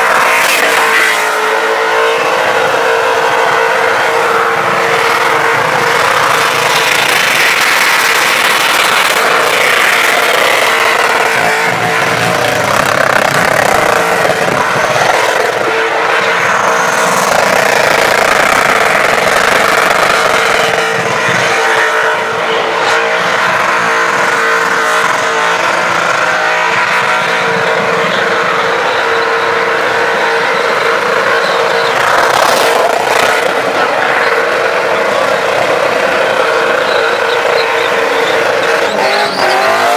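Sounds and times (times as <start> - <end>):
car engine at high revs: 0.0 - 39.9.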